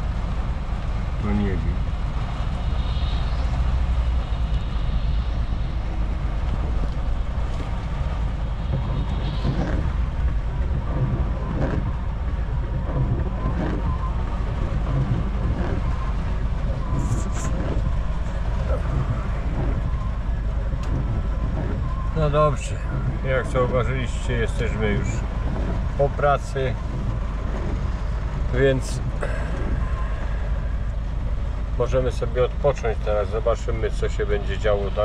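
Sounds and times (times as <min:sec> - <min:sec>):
engine and tyre noise: 0:00.0 - 0:35.0
rain tapping on windscreen: 0:00.0 - 0:35.0.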